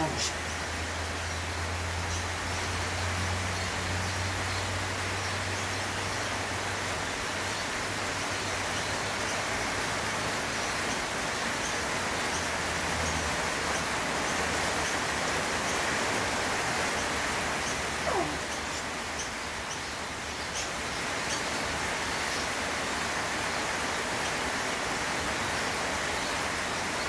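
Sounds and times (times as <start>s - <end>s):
rain falling on leaves: 0.0s - 27.0s.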